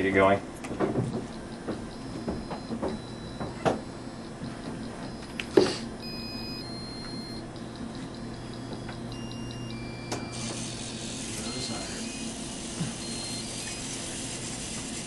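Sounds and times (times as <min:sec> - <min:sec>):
steady low hum: 0:00.0 - 0:15.0
short high-pitched electronic beeps: 0:06.0 - 0:08.4, 0:09.1 - 0:14.0
soft motor whir: 0:06.0 - 0:15.0.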